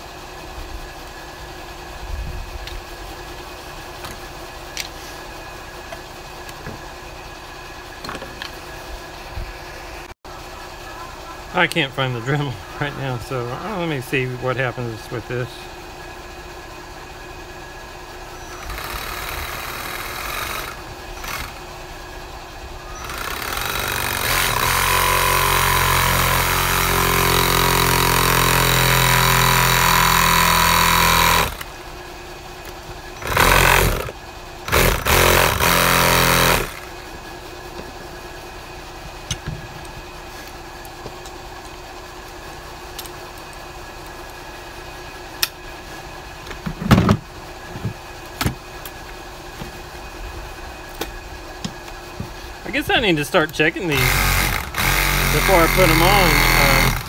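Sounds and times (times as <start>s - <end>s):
reciprocating saw cutting plastic: 18.4s - 21.6s, 22.9s - 31.7s, 33.2s - 37.0s, 53.9s - 57.0s.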